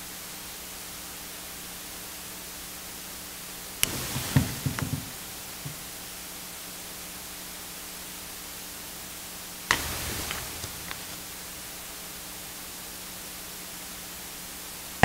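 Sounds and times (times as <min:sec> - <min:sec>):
steady hiss: 0:00.0 - 0:15.0
sharp knock: 0:03.8 - 0:05.8
soft clicks and rustles: 0:03.8 - 0:05.9, 0:09.7 - 0:12.0.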